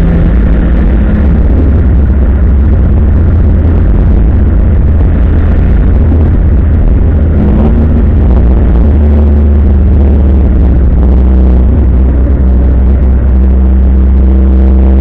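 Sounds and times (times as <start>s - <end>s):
race car engine running hard: 0.0s - 15.0s.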